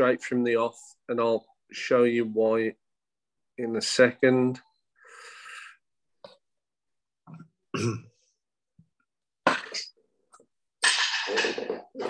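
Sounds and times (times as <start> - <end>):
man coughing: 7.7 - 8.1
man clearing throat: 7.7 - 8.2.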